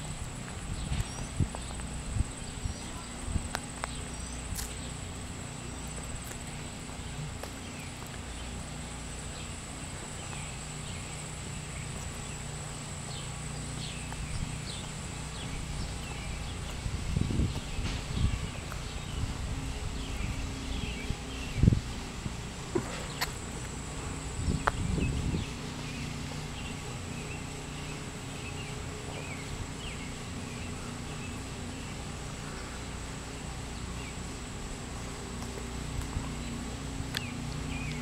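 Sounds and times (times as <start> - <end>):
footsteps on asphalt: 0.0 - 38.0
steady low hum: 0.0 - 38.0.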